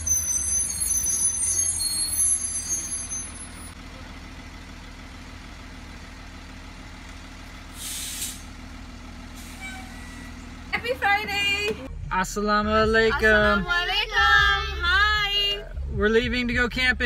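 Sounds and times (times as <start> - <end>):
bus engine idling: 0.0 - 17.0
air brakes hiss: 7.7 - 8.5, 9.4 - 10.3.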